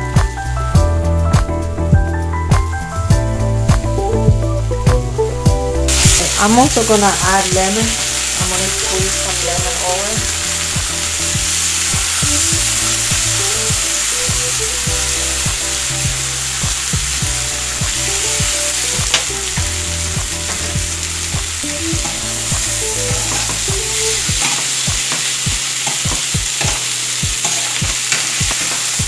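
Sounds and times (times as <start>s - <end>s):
chicken sizzling in a pan: 5.9s - 29.0s
spatula scraping a pan: 24.4s - 29.0s.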